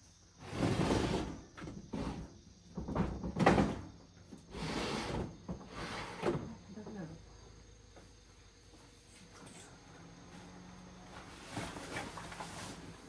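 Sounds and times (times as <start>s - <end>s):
sliding shutters rumbling: 0.4s - 7.0s.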